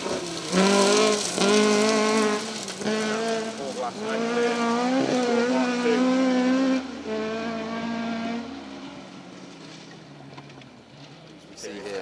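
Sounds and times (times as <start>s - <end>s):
rally car engine high revs: 0.0s - 9.1s.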